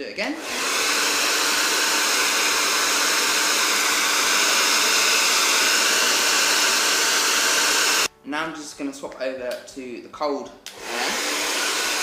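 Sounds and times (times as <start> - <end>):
hair dryer blowing: 0.3 - 8.1, 10.7 - 12.0.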